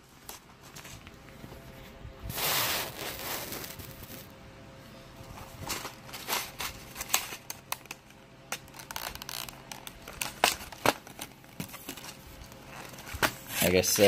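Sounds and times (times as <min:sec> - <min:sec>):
stiff plastic package crinkling: 0:05.6 - 0:14.0.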